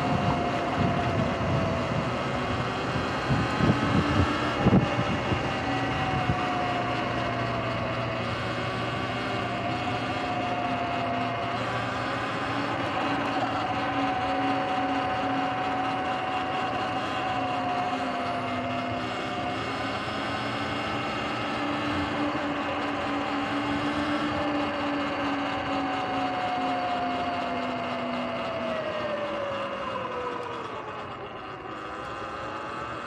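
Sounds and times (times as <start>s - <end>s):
tyre and wind noise: 0.0s - 8.2s
electric motorbike motor whining: 0.0s - 33.0s.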